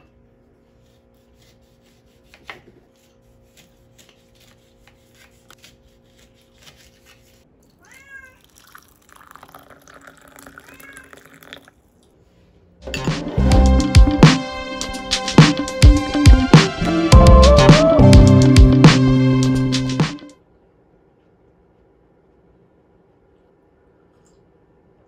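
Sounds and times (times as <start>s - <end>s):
knife cutting lemon: 0.8s - 7.4s
cat meowing: 7.8s - 8.8s, 10.5s - 11.4s
water pouring: 8.4s - 11.8s.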